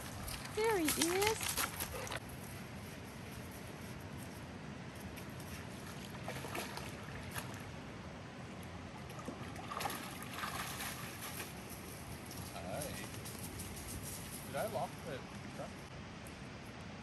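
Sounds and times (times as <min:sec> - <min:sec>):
dogs splashing in water: 0:05.8 - 0:07.6, 0:09.0 - 0:11.6.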